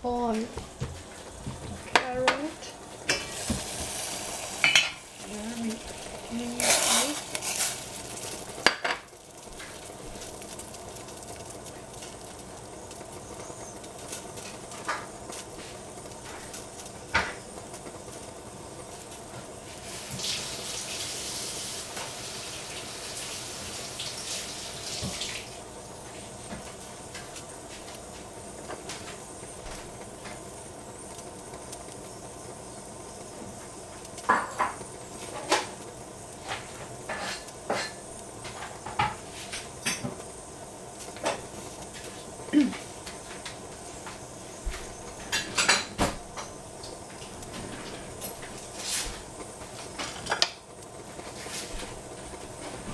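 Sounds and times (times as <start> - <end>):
saucepan of water hissing: 0.1 - 28.3.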